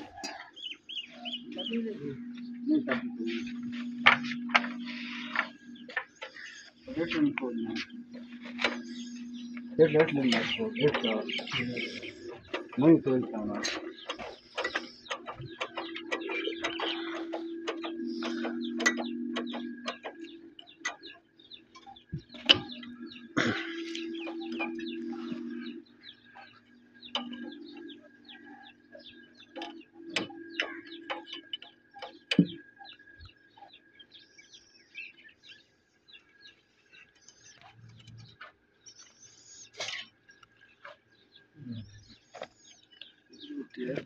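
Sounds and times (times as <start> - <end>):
birds chirping: 0.0 - 44.0
steady low hum: 0.0 - 44.0
sharp metal knocks: 4.0 - 32.8.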